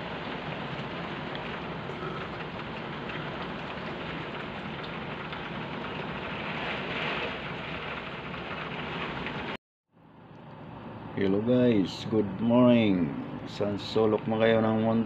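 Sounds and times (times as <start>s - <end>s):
rain and wind against window: 0.0s - 9.6s.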